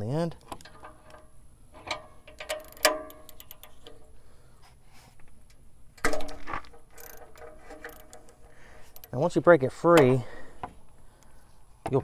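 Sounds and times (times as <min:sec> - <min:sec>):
sharp metallic clank: 0:01.8 - 0:04.0
ratchet clicking: 0:01.8 - 0:04.1, 0:06.8 - 0:09.2.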